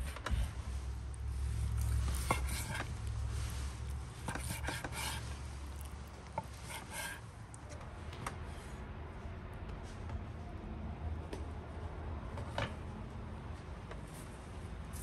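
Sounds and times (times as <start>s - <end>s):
knife cutting on wooden board: 1.8s - 3.0s, 4.2s - 7.2s.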